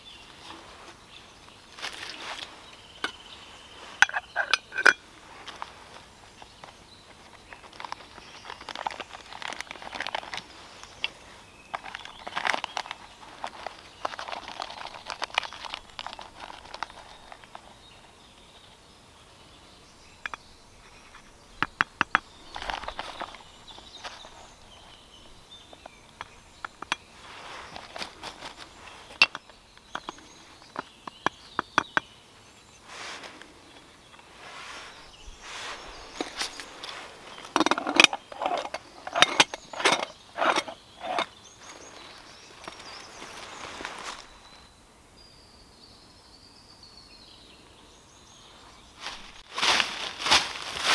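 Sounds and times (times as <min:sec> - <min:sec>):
coffee scooped with spoon rustling: 0:00.0 - 0:18.7, 0:20.2 - 0:44.7
foil coffee bag crinkling: 0:07.2 - 0:17.8, 0:27.2 - 0:29.2, 0:49.1 - 0:50.9.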